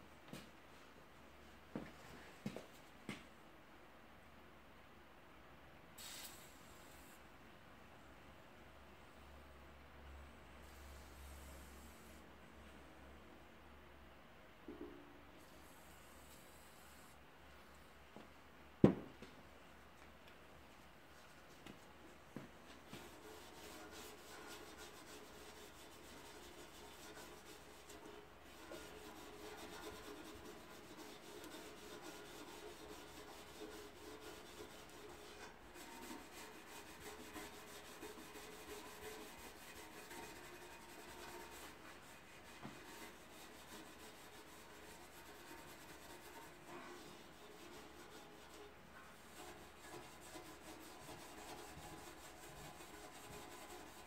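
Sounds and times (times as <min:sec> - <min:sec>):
rubbing and scraping in oil pan: 0:22.8 - 0:54.0.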